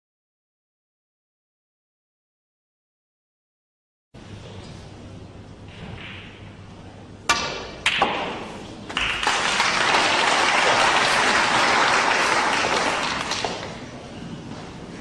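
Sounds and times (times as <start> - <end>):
audience applause: 9.0 - 13.8.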